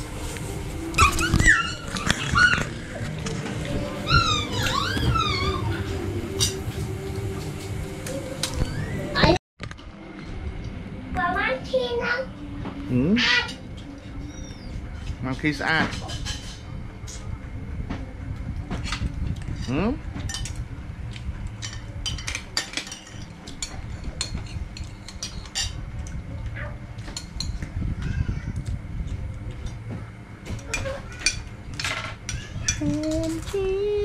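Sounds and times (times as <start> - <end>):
spoons clinking on plates: 21.6 - 25.8.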